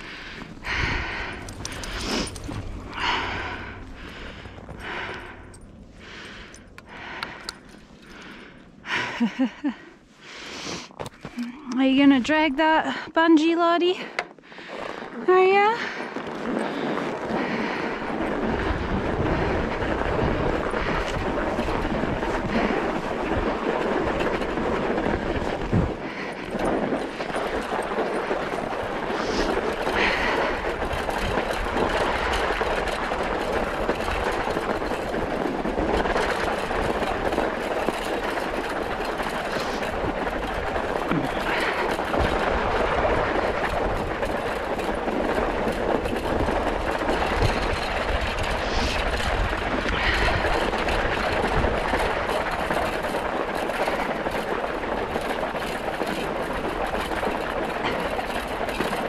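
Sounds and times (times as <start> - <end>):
scooter rattling: 0.0 - 59.0
scooter tyres rolling over snow: 0.0 - 59.0.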